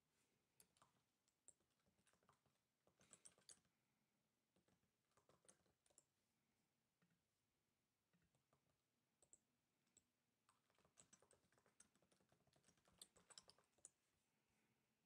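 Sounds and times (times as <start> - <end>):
faint keyboard typing: 0.6 - 3.7, 4.6 - 6.1, 8.2 - 14.0.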